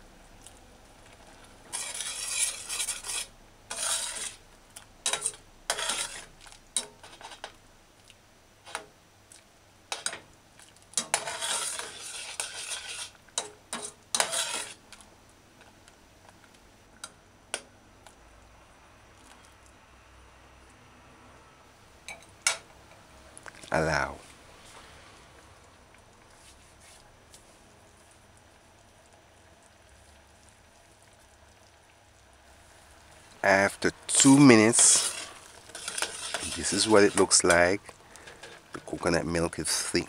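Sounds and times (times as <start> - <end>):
metal spoon scraping saucepan: 1.7 - 4.4, 5.0 - 7.5, 11.0 - 14.9, 34.1 - 39.0.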